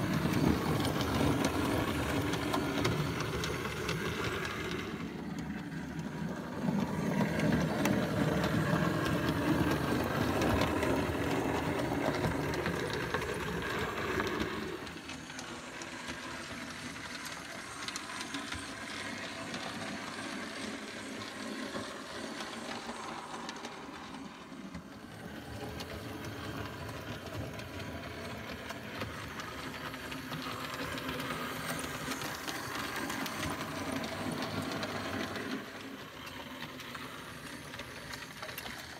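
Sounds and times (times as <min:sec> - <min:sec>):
model train running on track: 0:00.0 - 0:38.9.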